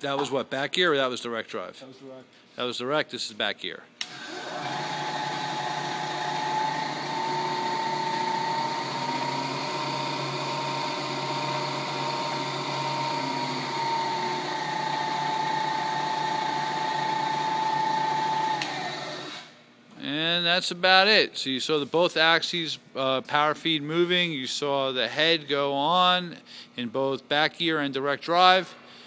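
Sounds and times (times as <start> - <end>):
milling machine whining: 4.0 - 19.5.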